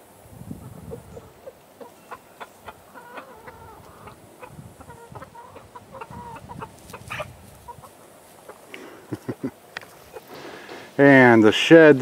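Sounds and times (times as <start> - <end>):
hens clucking softly: 0.5 - 10.9.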